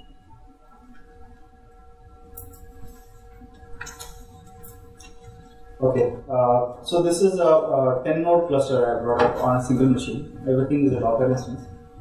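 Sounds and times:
steady hum with held tones: 0.0s - 12.0s.

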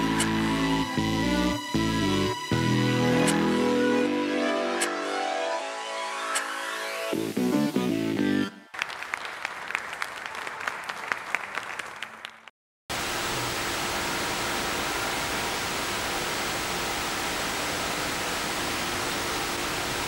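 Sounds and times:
audience applause: 8.7s - 12.5s
static hiss: 12.9s - 20.0s.

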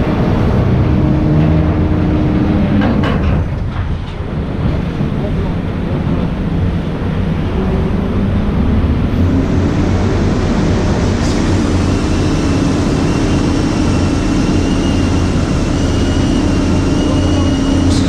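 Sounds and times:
drill rig engine hum: 0.0s - 3.6s, 6.7s - 18.0s
faint high whine: 10.3s - 18.0s.

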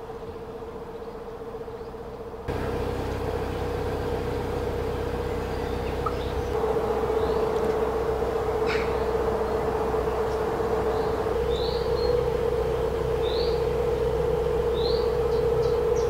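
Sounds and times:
boat engine low rumble: 0.0s - 16.0s.

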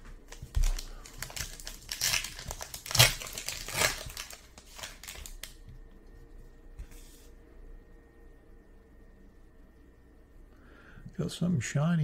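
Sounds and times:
wrapper crinkling and crackling: 0.2s - 5.7s.

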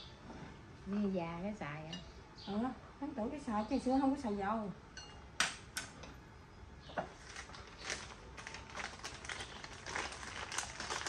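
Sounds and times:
wrappers crinkling: 7.1s - 11.0s.

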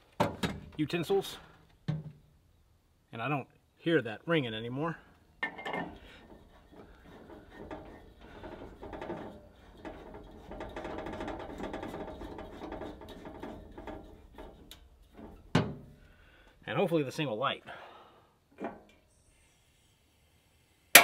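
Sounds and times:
metal threads grinding: 5.4s - 16.4s.

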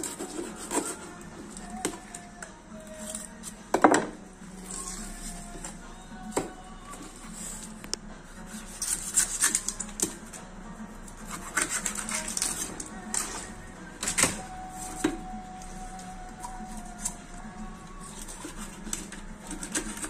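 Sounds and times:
knife scraping on cutting board: 0.0s - 1.2s, 8.4s - 10.2s, 11.2s - 13.4s, 18.1s - 20.0s.

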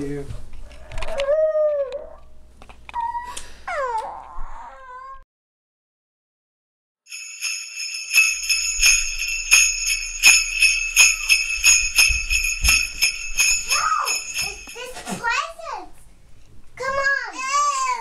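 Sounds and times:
sleigh bells jingling: 7.1s - 15.6s.

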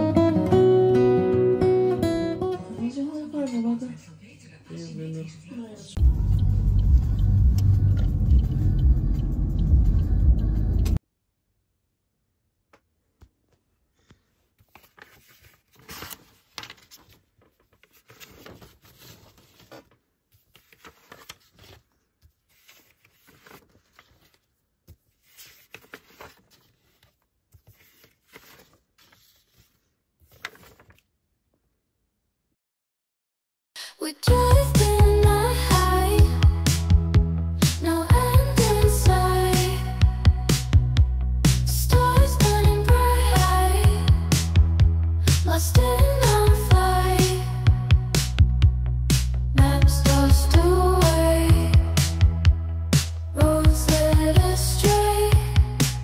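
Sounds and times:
road rumble inside moving car: 6.0s - 11.0s
paper sheets rustling: 13.5s - 31.1s.

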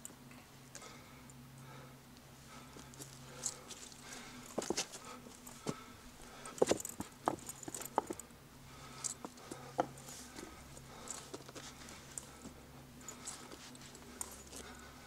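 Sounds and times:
faint low hum: 0.0s - 15.0s
footsteps on stony path: 2.8s - 8.2s.

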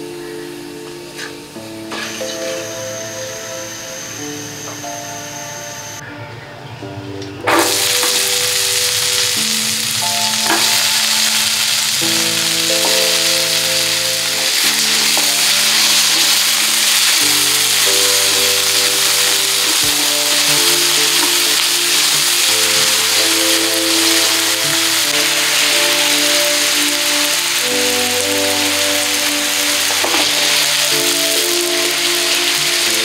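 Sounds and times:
soft background music: 0.0s - 33.0s
food sizzling in hot oil: 7.6s - 33.0s.

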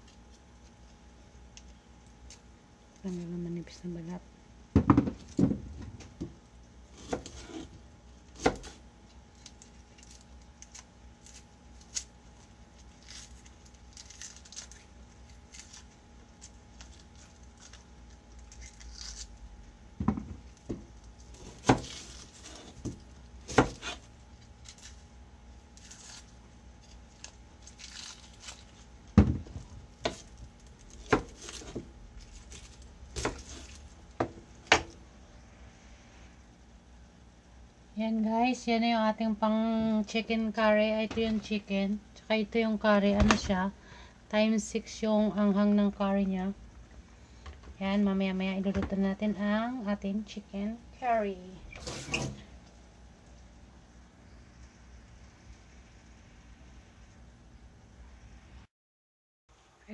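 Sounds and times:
onion skins rustling: 6.9s - 19.7s, 20.4s - 34.7s.

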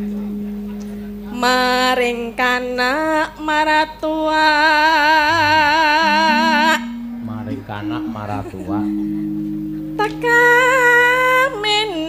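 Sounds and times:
faint low steady tones: 0.0s - 4.3s, 5.2s - 12.0s
woman singing with vibrato: 0.0s - 7.2s, 9.9s - 12.0s.

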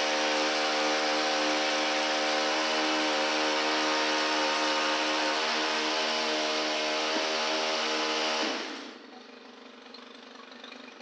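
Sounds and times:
pole pruner engine running: 0.0s - 11.0s.

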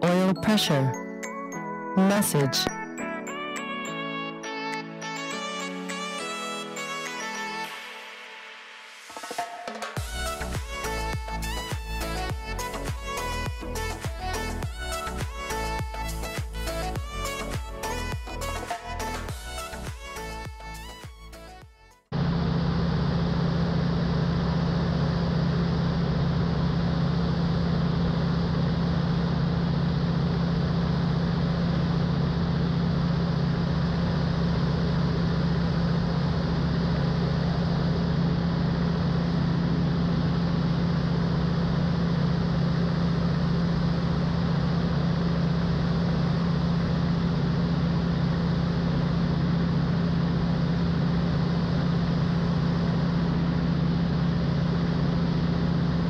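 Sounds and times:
aircraft engine and propeller droning: 22.2s - 56.0s.

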